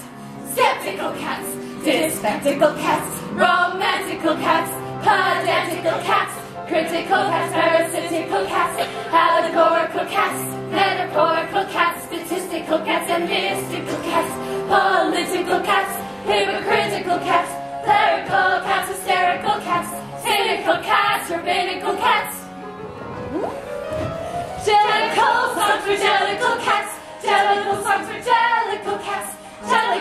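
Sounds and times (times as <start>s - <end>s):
ensemble singing together: 0.0s - 23.0s, 24.3s - 30.0s
instrumental accompaniment: 0.0s - 29.2s.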